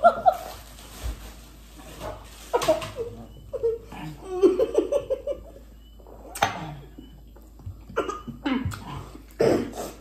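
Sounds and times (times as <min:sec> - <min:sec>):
person coughing: 0:07.9 - 0:10.0.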